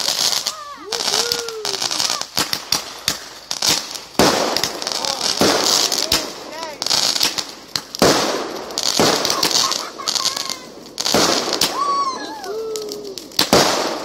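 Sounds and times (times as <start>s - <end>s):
fireworks bursting with loud bangs: 0.0s - 14.0s
fireworks crackling: 0.0s - 14.0s
small fireworks pops: 0.0s - 14.0s
high cries: 9.0s - 13.4s.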